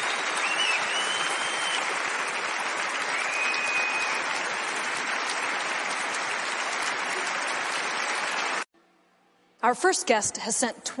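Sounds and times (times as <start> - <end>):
long high whistle: 0.0 - 1.9, 3.2 - 4.3
audience applauding: 0.0 - 8.7.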